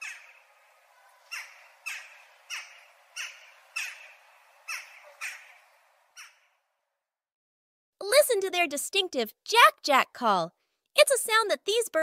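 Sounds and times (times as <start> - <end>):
jackdaw calling: 0.0 - 6.8.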